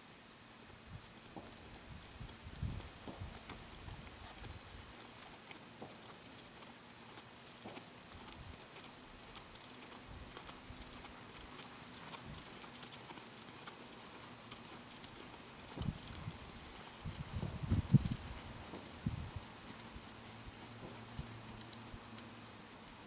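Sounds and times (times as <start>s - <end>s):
horse hoofbeats on sand: 1.0s - 22.3s
light clicks: 20.9s - 23.0s.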